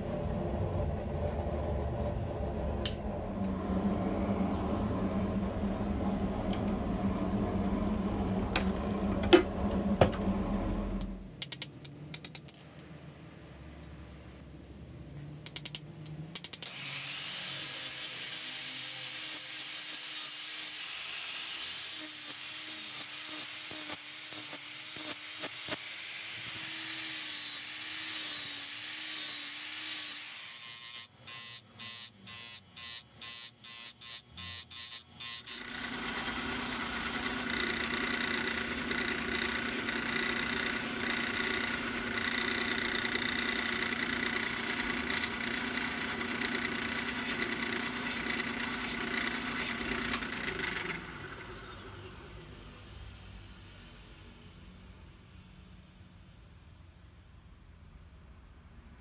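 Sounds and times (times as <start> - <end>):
belt grinder running: 16.6 - 31.6, 34.1 - 52.0
angle grinder grinding steel: 16.6 - 51.8.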